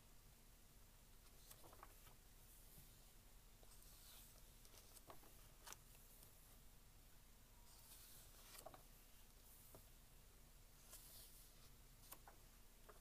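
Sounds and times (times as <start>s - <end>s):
book pages turning: 1.2s - 2.7s, 3.6s - 6.4s, 7.7s - 9.9s, 10.8s - 13.0s.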